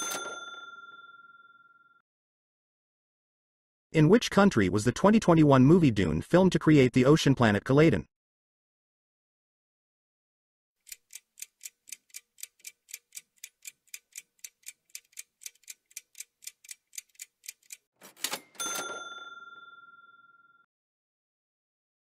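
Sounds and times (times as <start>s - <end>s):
clock ticking: 10.8s - 17.9s.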